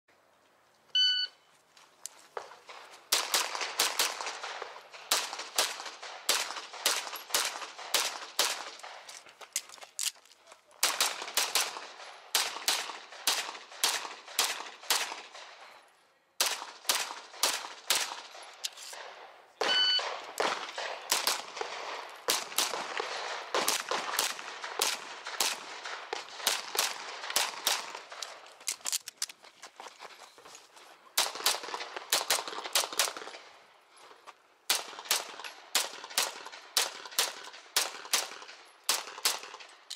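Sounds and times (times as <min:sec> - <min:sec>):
shot timer beep: 0:01.0 - 0:01.4, 0:19.6 - 0:20.1
rapid pistol shots: 0:02.7 - 0:09.1, 0:10.8 - 0:15.6, 0:16.4 - 0:18.4, 0:19.0 - 0:28.4, 0:31.2 - 0:33.4, 0:34.7 - 0:39.8.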